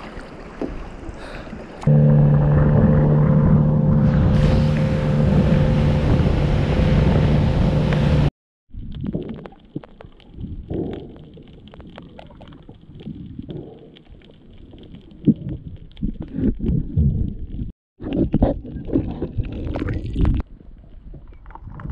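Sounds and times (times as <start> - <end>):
wind and water rushing: 0.0 - 8.3
motorboat engine running: 1.8 - 8.3
clicks and crackles: 8.8 - 16.8, 17.4 - 21.9.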